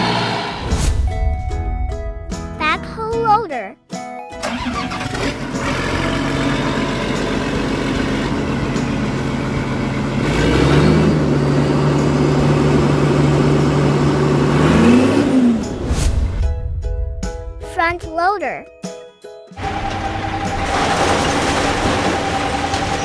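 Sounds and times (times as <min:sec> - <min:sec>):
heavy vehicle engine revving: 0:00.0 - 0:00.7, 0:04.5 - 0:15.9, 0:19.6 - 0:23.0.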